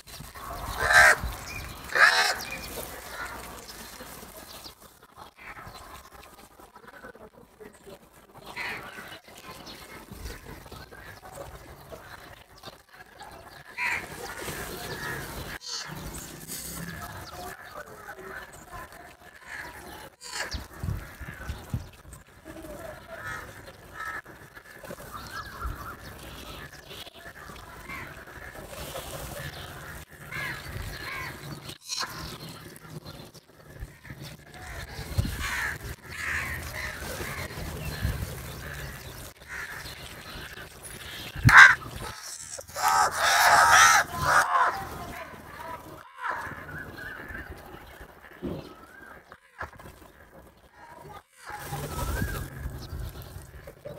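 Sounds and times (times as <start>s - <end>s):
crows cawing: 0.7s - 3.5s, 13.8s - 15.9s, 23.1s - 25.9s, 29.4s - 32.2s, 33.9s - 38.0s, 38.6s - 40.3s, 41.5s - 45.0s.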